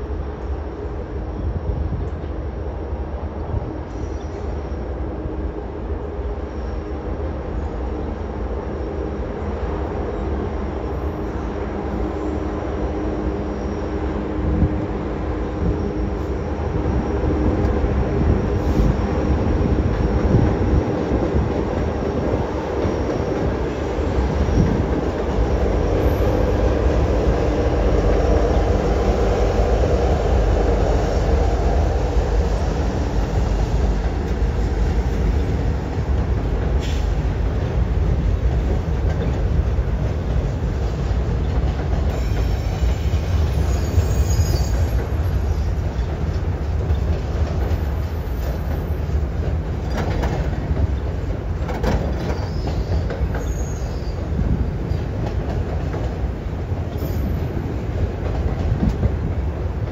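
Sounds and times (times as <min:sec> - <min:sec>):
diesel locomotives humming: 0:00.0 - 0:59.9
train wheels rumbling on rails: 0:00.0 - 0:59.9
faint wheel squeal: 0:42.1 - 0:45.8, 0:52.2 - 0:54.3.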